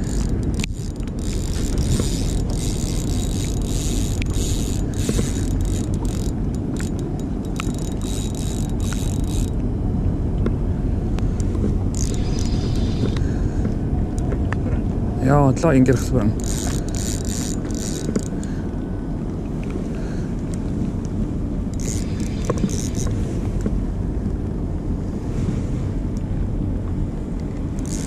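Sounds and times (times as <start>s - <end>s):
fishing reel clicking and scraping: 0.0s - 9.6s, 11.9s - 13.4s, 16.3s - 18.5s, 21.7s - 23.2s, 27.8s - 28.0s
steady low rumble: 0.0s - 28.0s.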